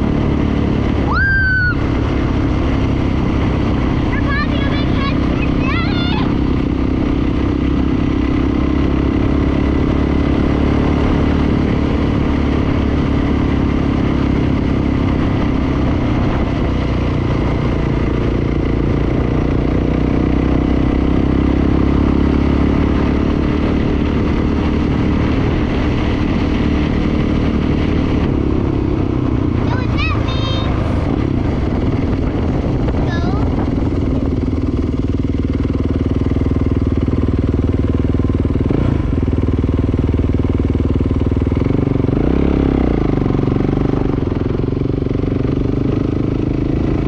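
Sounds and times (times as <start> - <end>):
dirt bike engine running: 0.0 - 47.0.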